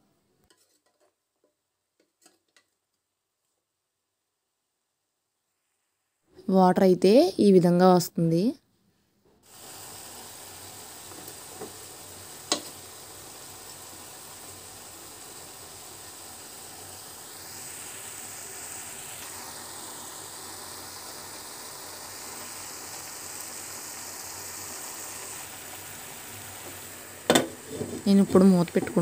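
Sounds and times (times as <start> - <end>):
chicken sizzling in a pan: 9.4 - 29.0
metal spoon knocking on pan: 12.5 - 12.7, 27.3 - 28.0.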